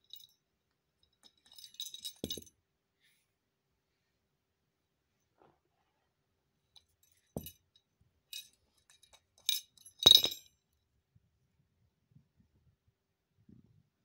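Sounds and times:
toy bell clinking and clattering: 0.0 - 0.3, 1.2 - 2.5, 7.4 - 7.6, 8.3 - 10.5.

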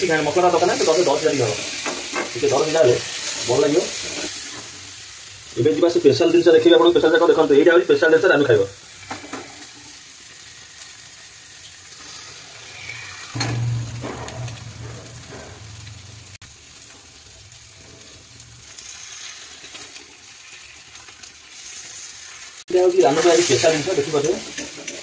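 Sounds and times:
masala sizzling in a pan: 0.0 - 25.0
low hum: 13.4 - 16.4.

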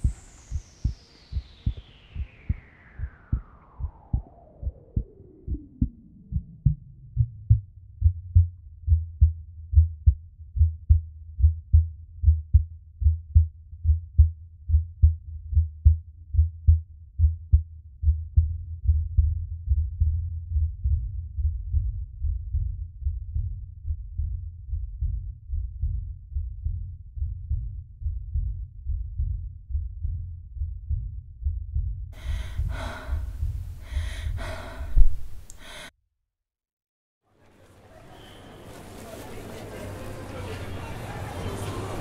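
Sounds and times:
heartbeat-like thumping pulse: 0.0 - 35.9.

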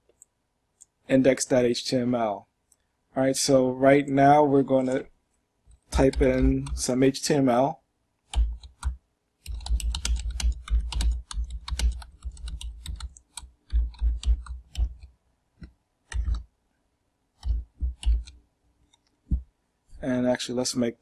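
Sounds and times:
typing on a computer keyboard: 6.0 - 6.9, 8.3 - 15.1, 16.1 - 16.4, 17.4 - 18.4.

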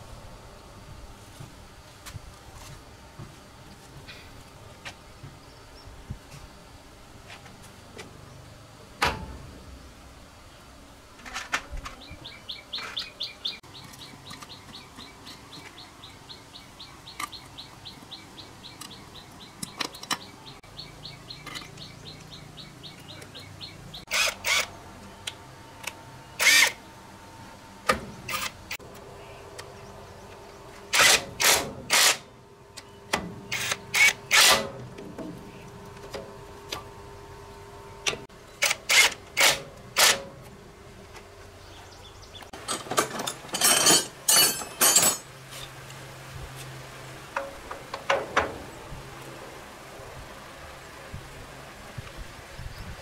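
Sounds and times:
impact wrench bursts: 24.1 - 24.7, 26.4 - 26.8, 30.9 - 32.3, 33.5 - 34.8, 38.6 - 40.3.

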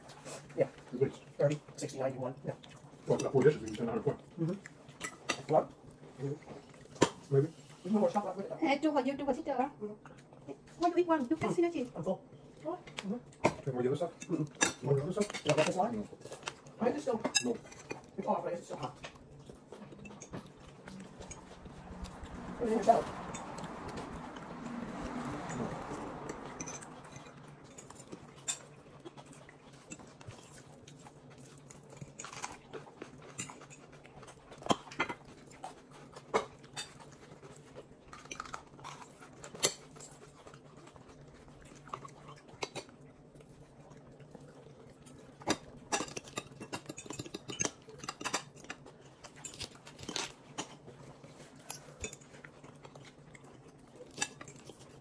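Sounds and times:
low steady hum: 0.0 - 55.0
cutlery and dishes clinking: 13.4 - 15.8, 17.2 - 18.1, 25.4 - 28.7, 45.4 - 50.8, 51.6 - 52.3.

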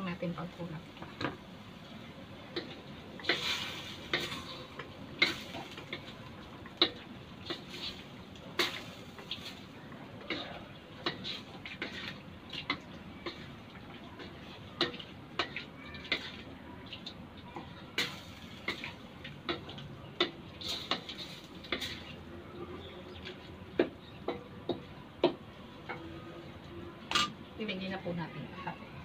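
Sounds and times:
wooden spatula scraping a wok: 2.6 - 6.1, 6.8 - 9.7, 10.3 - 13.5, 20.6 - 22.2.

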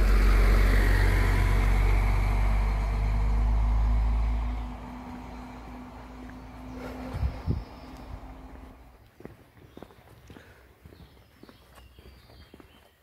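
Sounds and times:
vehicle passing by: 0.0 - 9.0.

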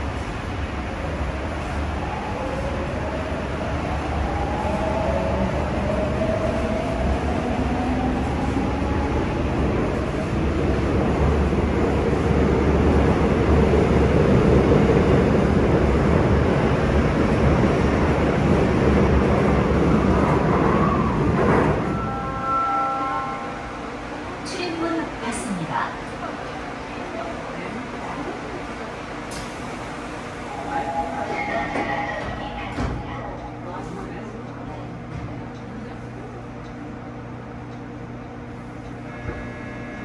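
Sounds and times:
rumble of train wheels: 0.0 - 40.0
electric train motor whine: 38.9 - 40.0.

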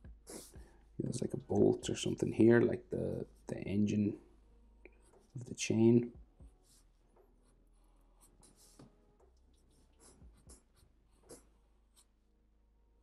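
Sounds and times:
marker scratching on paper: 0.3 - 0.6, 8.2 - 8.9, 9.6 - 12.1.

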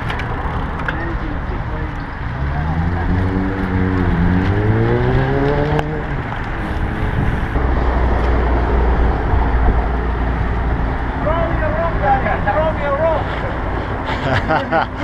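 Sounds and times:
vehicle engine speeding up: 2.3 - 11.2
deep wind buffeting rumble: 3.2 - 12.4
wind rush on microphone: 4.0 - 11.5.

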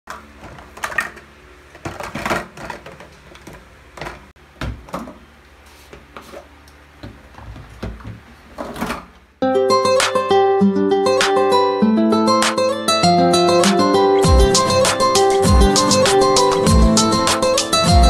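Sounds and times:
plastic bottles clattering: 0.1 - 5.2.

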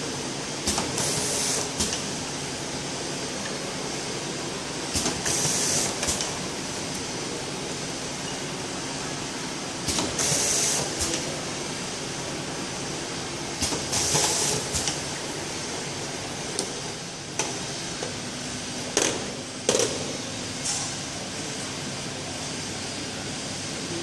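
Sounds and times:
machine conveyor running: 0.0 - 7.2, 9.2 - 18.0.

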